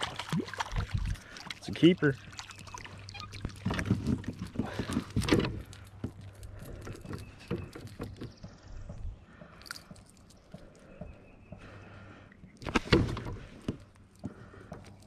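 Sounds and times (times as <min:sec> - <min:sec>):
fish flapping against kayak: 0:00.0 - 0:01.6, 0:02.2 - 0:08.4.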